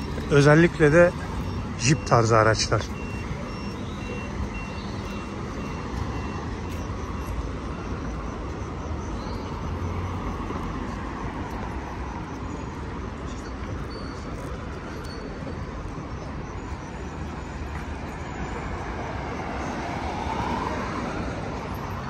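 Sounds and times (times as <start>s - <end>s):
city traffic rumble: 0.0s - 22.0s.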